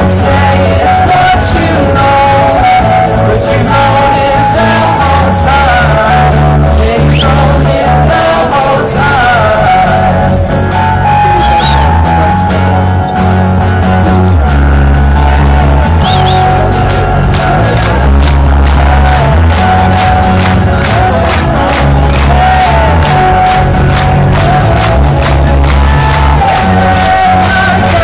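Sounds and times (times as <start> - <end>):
person singing lead vocal: 0.0 - 13.2, 15.1 - 28.0
electric guitar: 0.0 - 28.0
strummed acoustic guitar: 0.0 - 28.0.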